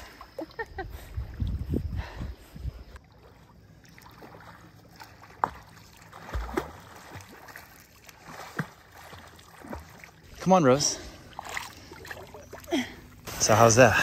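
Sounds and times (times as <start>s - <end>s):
swimming strokes splashing: 3.0s - 13.6s.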